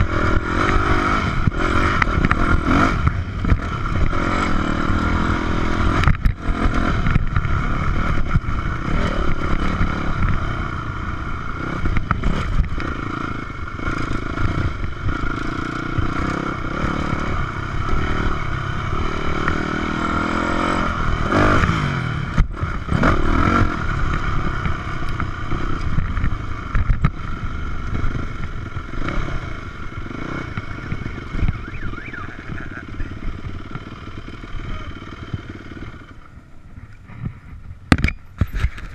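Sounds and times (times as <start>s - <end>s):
dirt bike engine revving: 0.0s - 37.6s
bike rattle: 36.7s - 38.9s.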